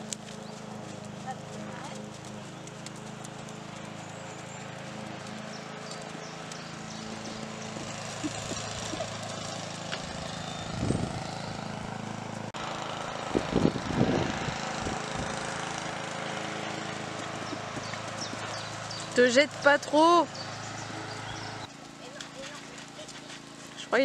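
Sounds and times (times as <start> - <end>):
horse hooves thudding: 0.0 - 11.2, 16.5 - 24.0
lawn mower engine running: 0.0 - 24.0.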